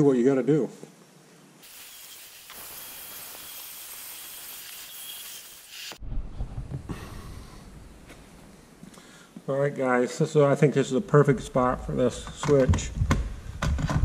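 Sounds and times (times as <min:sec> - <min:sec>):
rotary tool grinding whine: 0:01.6 - 0:06.0
low thumps and handling noise: 0:06.0 - 0:09.5, 0:11.8 - 0:14.0.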